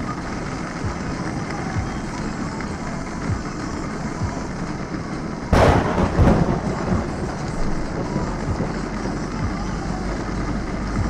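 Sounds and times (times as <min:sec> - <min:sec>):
car noise from inside: 0:00.0 - 0:05.2, 0:06.6 - 0:11.0
steady rain: 0:00.0 - 0:11.0
thunderclap: 0:05.5 - 0:09.0.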